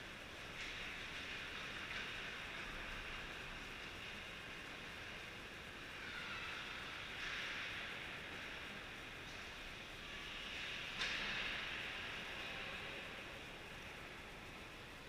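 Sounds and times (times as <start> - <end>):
arena hall ambience: 0.0 - 15.0.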